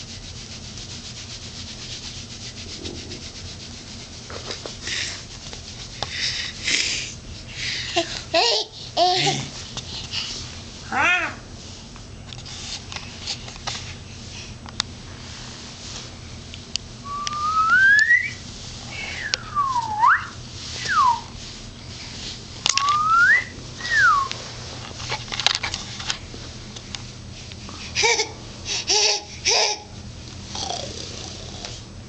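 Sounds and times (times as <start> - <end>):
person whistling sliding notes: 17.1 - 18.4, 19.0 - 21.3, 22.7 - 24.3.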